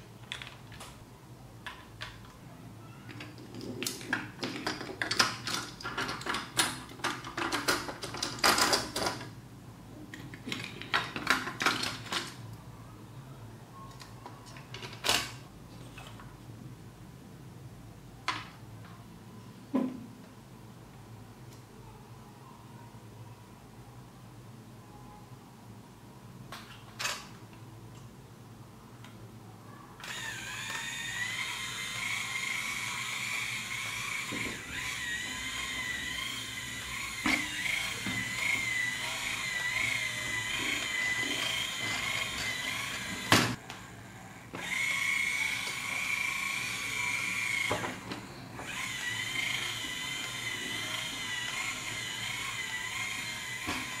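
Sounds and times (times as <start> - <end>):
toy motor high whine: 30.0 - 54.0.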